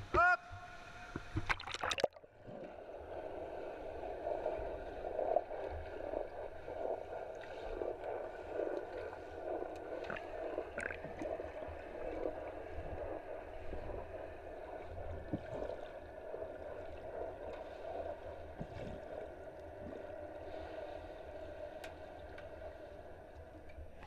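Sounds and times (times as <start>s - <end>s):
underwater pool noise: 0.0s - 24.0s
water splashing: 1.2s - 2.3s, 10.0s - 11.6s
faint clicks: 21.8s - 22.6s.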